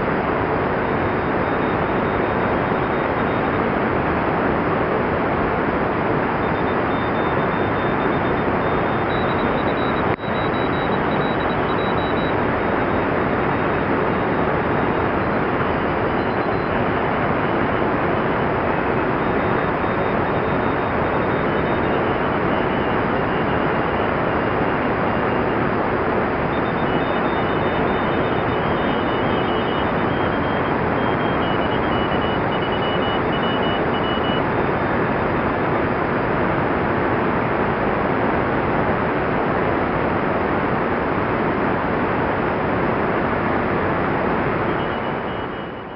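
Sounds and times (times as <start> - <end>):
radio band noise rushing: 6.2 - 36.2
faint morse code beeps: 6.4 - 17.8, 18.4 - 25.5, 26.5 - 35.0, 44.6 - 45.9.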